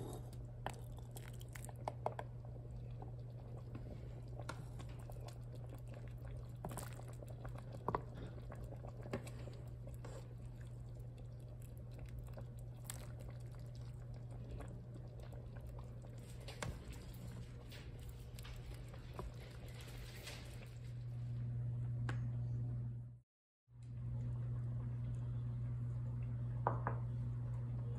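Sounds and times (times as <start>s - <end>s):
steady low hum: 0.0s - 23.2s, 23.8s - 27.9s
soup sloshing and dripping: 0.4s - 20.9s.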